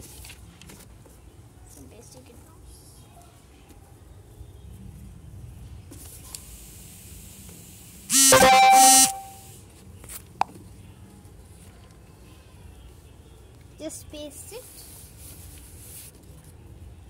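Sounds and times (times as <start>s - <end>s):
loud horn tone: 8.1s - 9.4s.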